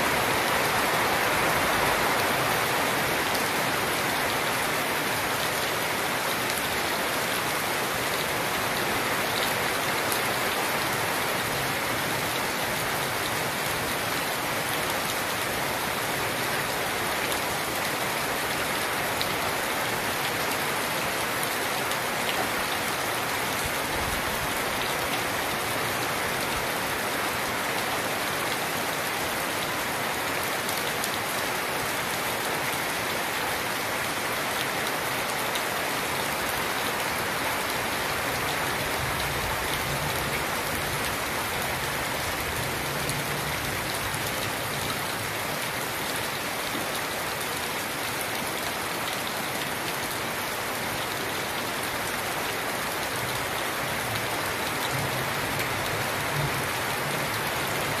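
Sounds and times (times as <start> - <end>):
rain on foliage: 0.0 - 58.0.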